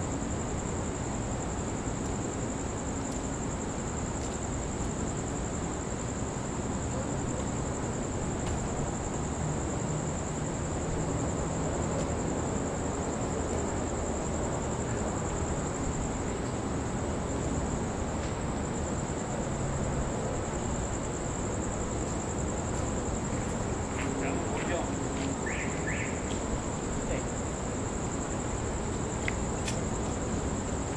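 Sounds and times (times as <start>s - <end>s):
crickets trilling: 0.0s - 30.9s
low rushing background noise: 0.0s - 30.9s.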